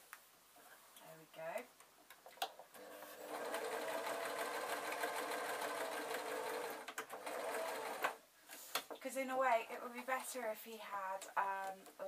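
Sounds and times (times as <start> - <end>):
sewing machine stitching: 2.8 - 8.2.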